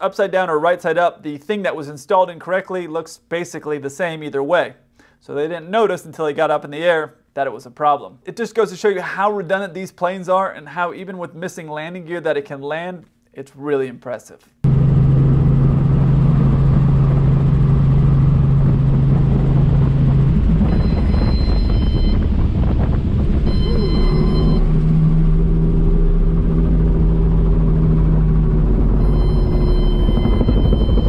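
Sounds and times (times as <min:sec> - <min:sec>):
helicopter engine and rotor drone: 0:14.7 - 0:31.0
high warning tones: 0:19.5 - 0:31.0.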